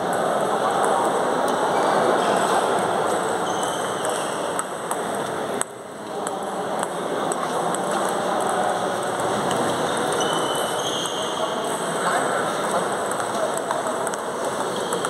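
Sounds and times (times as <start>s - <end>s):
sports hall noise: 0.0s - 15.0s
table tennis balls clicking: 3.6s - 11.2s, 12.8s - 15.0s.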